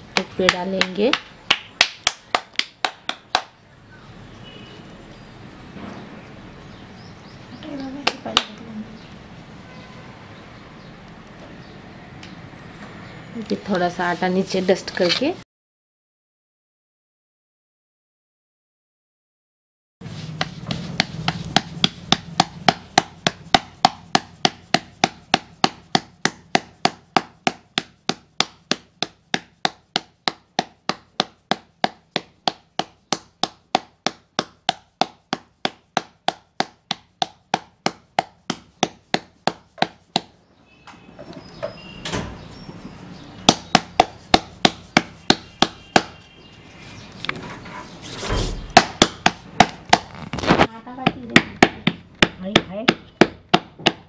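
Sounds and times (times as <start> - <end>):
hands rubbing and pressing dough: 0.0 - 3.6, 20.0 - 40.4, 42.8 - 54.0
palms slapping dough: 0.0 - 3.6, 5.1 - 8.6, 20.0 - 40.4, 43.4 - 46.6, 48.6 - 54.0.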